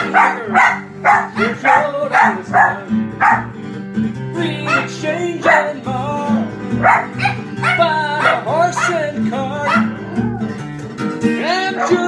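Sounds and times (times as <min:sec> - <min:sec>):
small dog barking: 0:00.0 - 0:03.5, 0:04.6 - 0:05.7, 0:06.8 - 0:10.4, 0:11.8 - 0:12.0
acoustic guitar strumming: 0:00.0 - 0:12.0.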